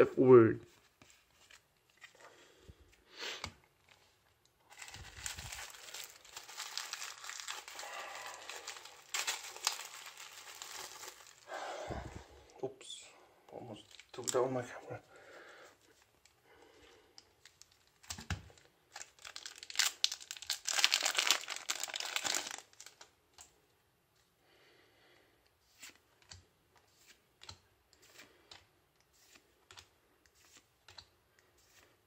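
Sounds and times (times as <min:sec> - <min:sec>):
foil pack crinkling and tearing: 0:04.7 - 0:11.5, 0:18.9 - 0:23.1.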